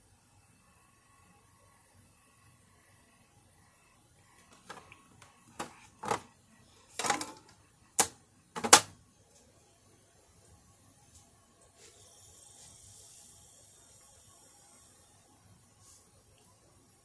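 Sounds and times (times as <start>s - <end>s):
plastic clicks of dvd player: 8.0s - 9.0s.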